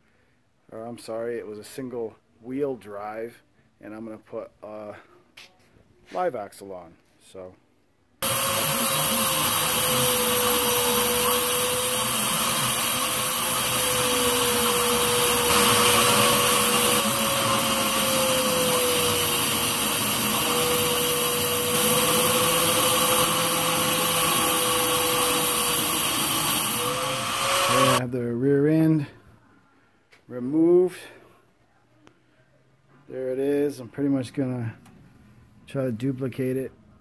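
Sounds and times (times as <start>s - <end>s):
angle grinder cutting steel: 8.2s - 28.0s.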